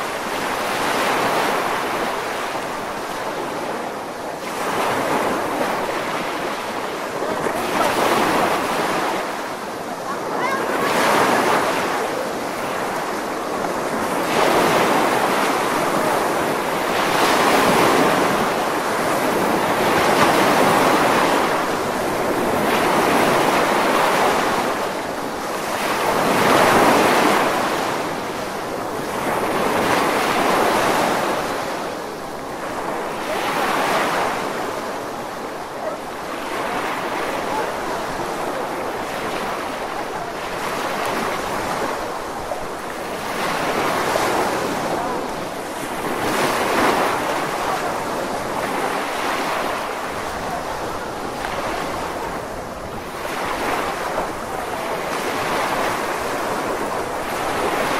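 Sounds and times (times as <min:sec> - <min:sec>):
waves breaking on sandy beach: 0:00.0 - 0:57.9.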